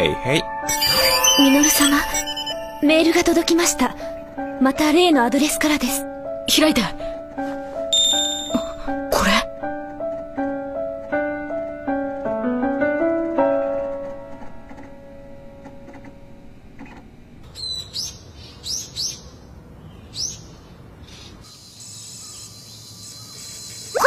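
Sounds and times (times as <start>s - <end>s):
background music: 0.0s - 16.3s
faint high-pitched drone: 0.7s - 3.4s.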